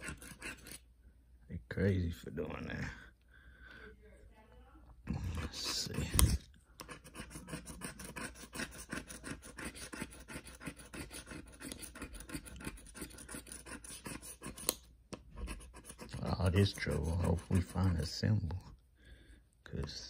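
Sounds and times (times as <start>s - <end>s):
plastic tool scraping a ticket: 0.0s - 0.8s, 5.4s - 14.8s, 15.4s - 18.1s.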